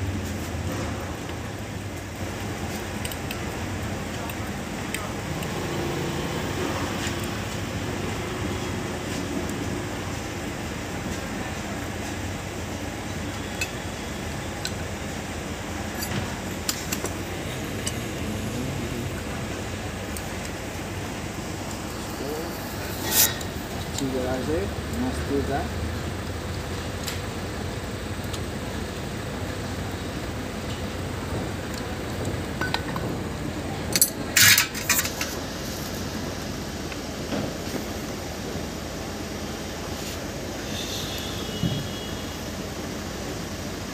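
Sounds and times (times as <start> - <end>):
metal parts clinking on hard surface: 15.9 - 17.1, 33.9 - 35.2
metallic clicks and clinks: 15.9 - 17.2.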